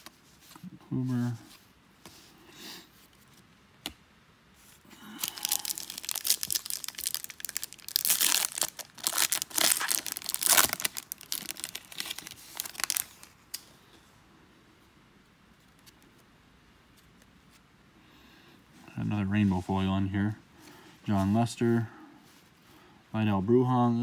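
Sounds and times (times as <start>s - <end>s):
foil wrapper tearing and crinkling: 5.1s - 13.6s.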